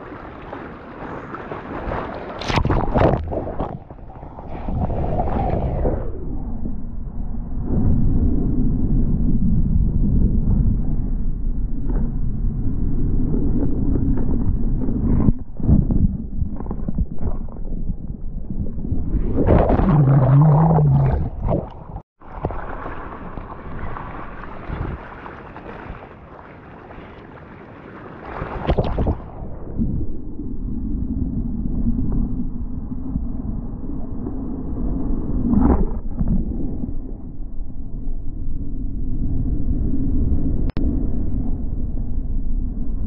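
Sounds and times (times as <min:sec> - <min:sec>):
water splash: 0:00.0 - 0:05.8, 0:16.5 - 0:29.5
water rushing and churning: 0:00.0 - 0:06.2, 0:14.1 - 0:29.9.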